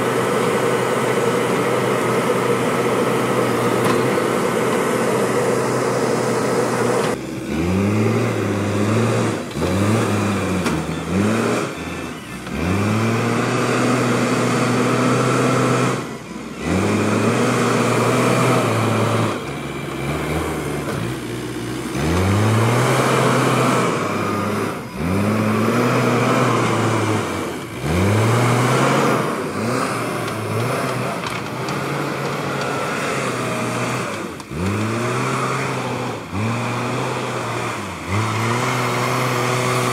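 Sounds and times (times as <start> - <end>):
diesel engine revving: 0.0 - 39.9.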